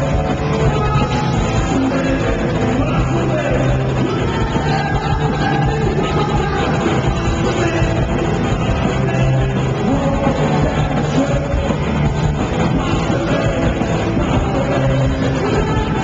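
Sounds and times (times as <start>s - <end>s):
bass guitar: 0.0s - 16.0s
distorted electric guitar: 0.0s - 16.0s
drums: 0.0s - 16.0s
singer's vocals: 0.0s - 16.0s.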